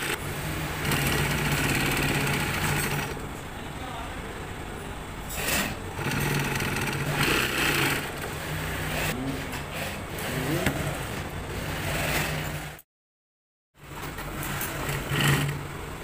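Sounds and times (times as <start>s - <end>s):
sewing machine motor humming: 0.0s - 3.3s, 5.3s - 12.8s, 14.2s - 15.7s.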